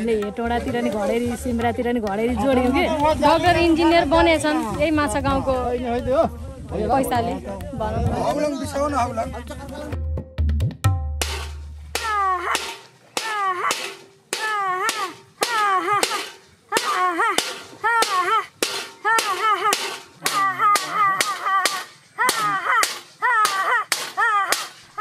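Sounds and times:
stick striking metal vessel: 0:10.9 - 0:25.0.

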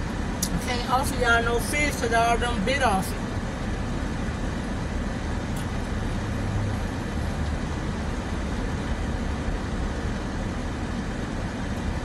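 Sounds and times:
car idling: 0:00.0 - 0:12.0.

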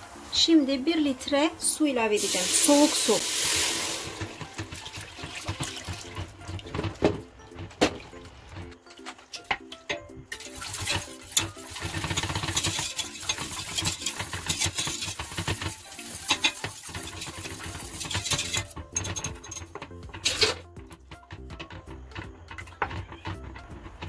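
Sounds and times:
liquid swishing in a pot: 0:02.3 - 0:08.8, 0:10.3 - 0:19.6
whisk scraping and clinking on pot: 0:04.2 - 0:07.9, 0:09.9 - 0:20.6.

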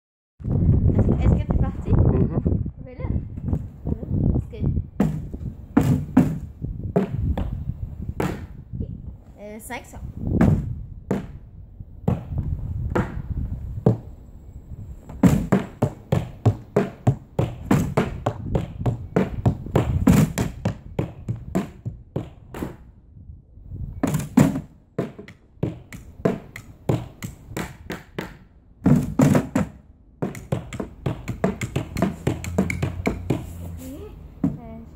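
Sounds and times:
drumming on plastic sleds: 0:05.0 - 0:07.4, 0:15.1 - 0:22.8, 0:24.0 - 0:33.6.

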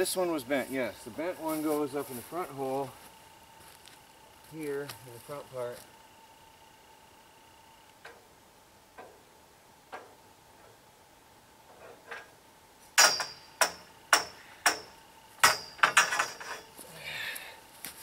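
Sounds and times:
metal pipes clanking: 0:13.0 - 0:16.8.

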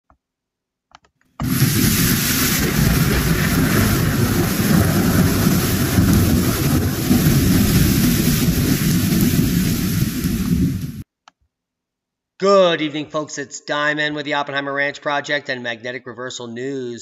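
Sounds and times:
rain: 0:01.4 - 0:11.0.

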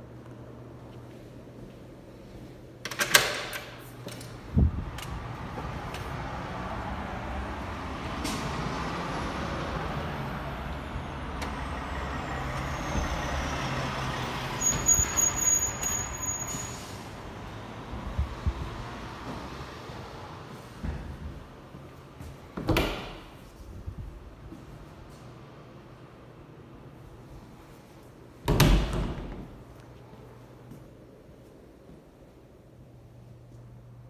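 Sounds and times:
outdoor traffic noise: 0:00.0 - 0:34.0
door clattering open: 0:02.9 - 0:04.4
high squeal: 0:11.7 - 0:17.1
door thumping: 0:28.5 - 0:29.5.

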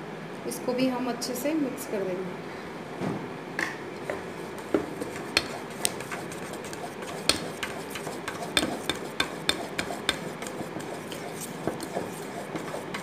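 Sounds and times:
whisk stirring batter: 0:04.1 - 0:13.0
whisk clinking on steel bowl: 0:04.4 - 0:13.0.

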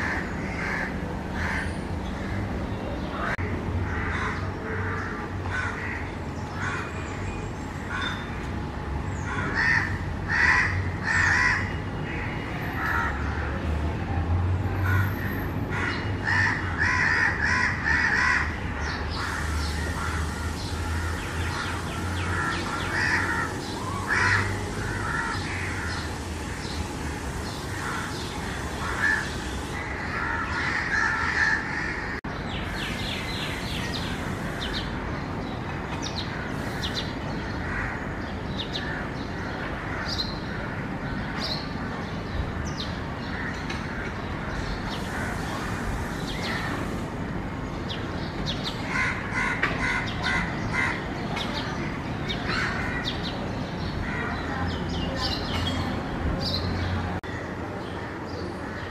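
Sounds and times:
crows cawing: 0:00.0 - 0:02.4, 0:03.2 - 0:06.9, 0:09.3 - 0:13.2, 0:15.7 - 0:26.1, 0:27.8 - 0:32.2, 0:48.8 - 0:51.1
bird calls and chirps: 0:32.2 - 0:40.5.

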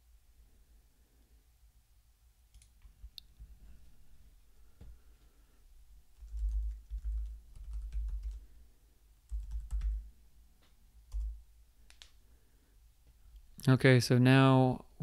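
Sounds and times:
computer keyboard typing: 0:06.2 - 0:08.5, 0:09.3 - 0:10.1, 0:11.1 - 0:11.4.

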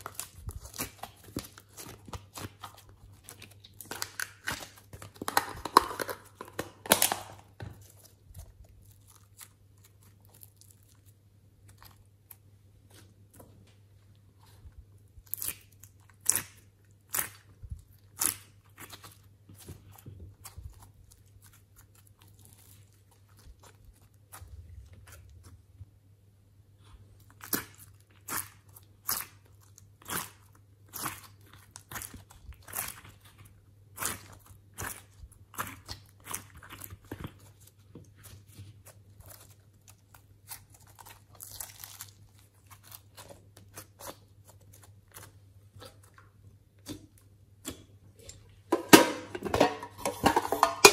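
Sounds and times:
slime popping and crackling: 0:00.0 - 0:12.4, 0:38.4 - 0:47.9.

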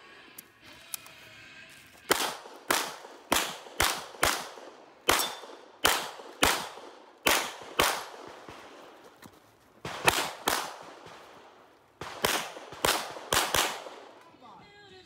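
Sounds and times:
pistol shots with echo: 0:02.1 - 0:09.0, 0:09.8 - 0:14.3.

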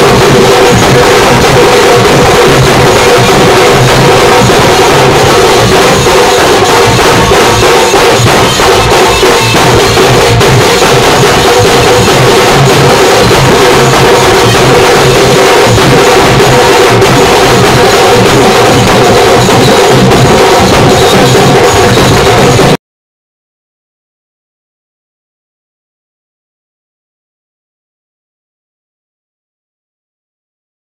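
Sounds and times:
festival music with fast drumming: 0:00.0 - 0:22.8.

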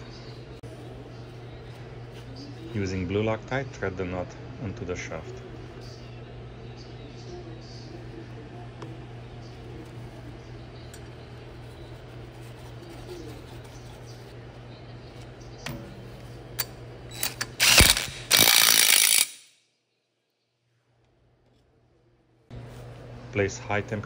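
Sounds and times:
steady low hum: 0:00.0 - 0:19.6, 0:20.6 - 0:24.0
impact wrench hammering: 0:17.2 - 0:19.5.

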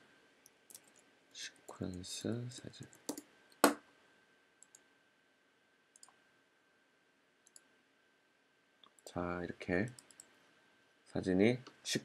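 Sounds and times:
computer mouse clicks: 0:04.6 - 0:04.9, 0:05.9 - 0:06.2, 0:07.4 - 0:07.7, 0:09.9 - 0:10.4.

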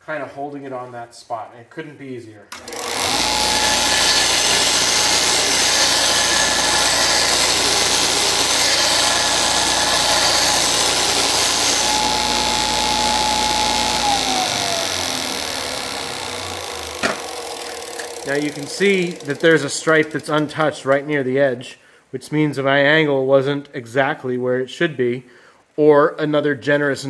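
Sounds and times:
sander motor spinning down: 0:02.6 - 0:19.7
belt sander grinding steel: 0:02.6 - 0:20.4.

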